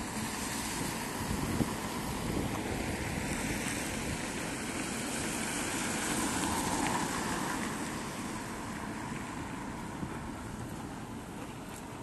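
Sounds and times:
wind buffeting microphone: 0.0s - 5.8s
street ambience hiss: 0.0s - 12.0s.

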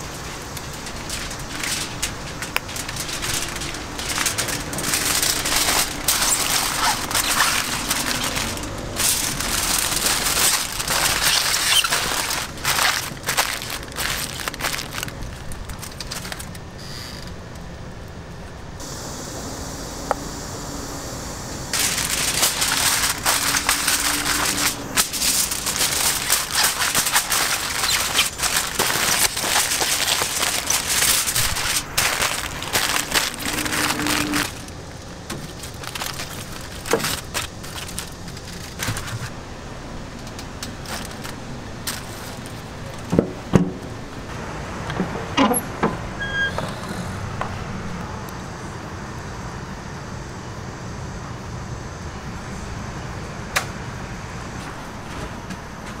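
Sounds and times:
aluminium foil crumpling: 0.0s - 17.4s, 21.7s - 39.5s, 40.1s - 43.1s
low background hum: 0.0s - 46.2s.

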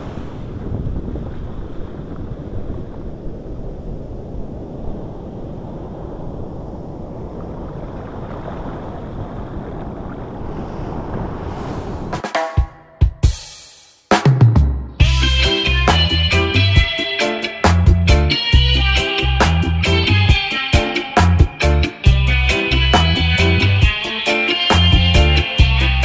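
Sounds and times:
wind on microphone: 0.0s - 12.2s
ocean surf washing: 0.0s - 12.9s, 15.0s - 26.0s.

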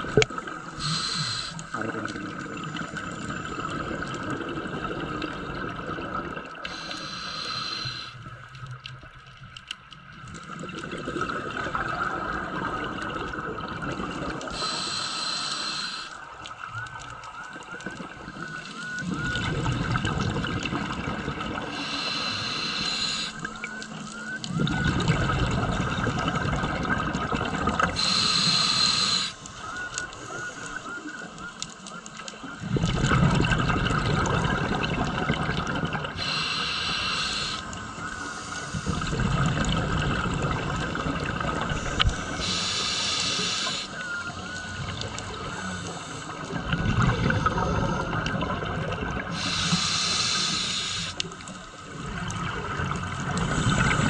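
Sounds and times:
bubbling rumbles of exhaled air: 0.0s - 6.8s, 10.2s - 14.7s, 17.7s - 21.8s, 24.4s - 28.4s, 32.4s - 42.6s, 43.8s - 49.6s, 51.9s - 54.0s
hiss of inhaled air: 0.8s - 1.7s, 6.7s - 8.2s, 14.5s - 16.2s, 21.7s - 23.4s, 28.0s - 29.5s, 36.2s - 39.1s, 41.8s - 44.0s, 45.5s - 46.5s, 49.3s - 51.3s.

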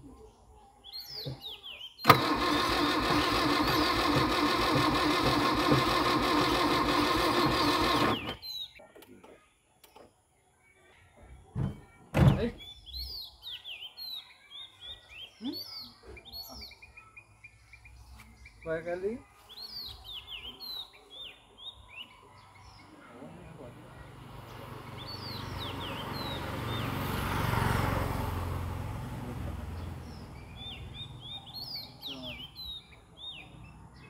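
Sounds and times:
engine cranking whir: 2.0s - 8.5s.

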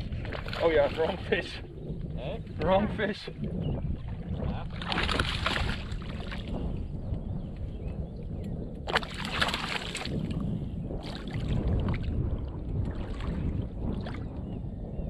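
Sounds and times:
wind rumble on microphone: 0.0s - 15.0s
fish splashing in water: 4.7s - 6.5s, 8.9s - 10.3s.

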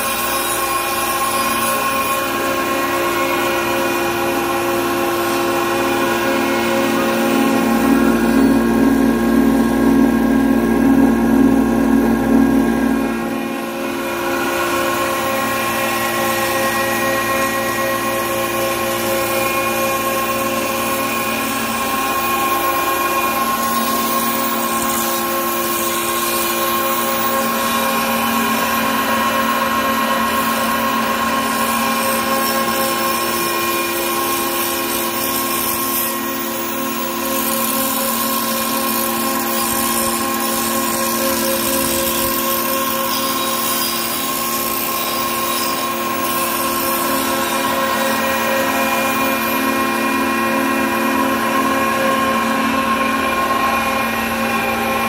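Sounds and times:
hammer mill humming and whining: 0.0s - 55.0s.

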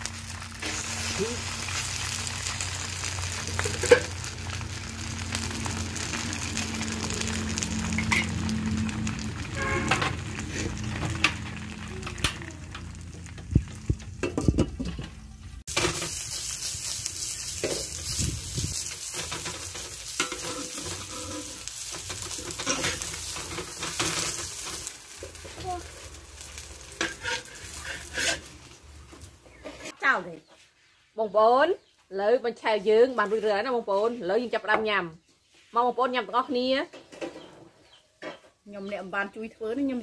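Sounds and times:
batter sizzling in a hot wok: 0.0s - 14.8s, 15.6s - 30.0s
metal spatula scraping a pan: 18.8s - 26.1s, 26.8s - 28.7s, 29.5s - 30.0s.

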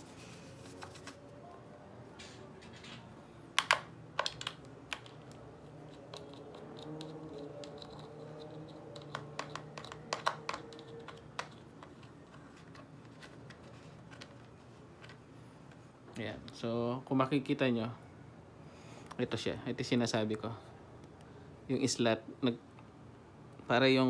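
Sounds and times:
plastic housing clicks and taps: 3.6s - 5.4s, 8.9s - 12.9s.

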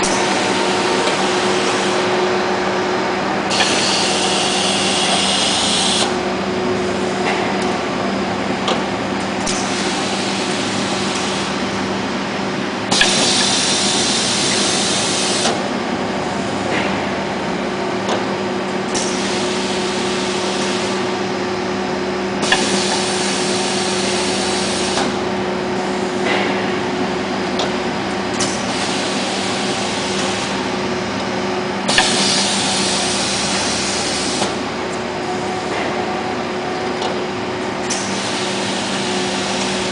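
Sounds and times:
machinery electric hum: 0.0s - 39.9s
pneumatic valve clicks: 3.5s - 6.1s, 9.4s - 9.7s, 12.9s - 13.7s, 18.9s - 19.3s, 28.3s - 28.9s, 31.9s - 32.6s, 37.9s - 38.3s.

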